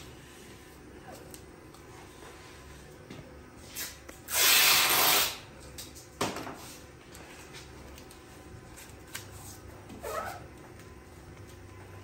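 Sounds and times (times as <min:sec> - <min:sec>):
masking tape ripping off roll: 0:03.7 - 0:05.4.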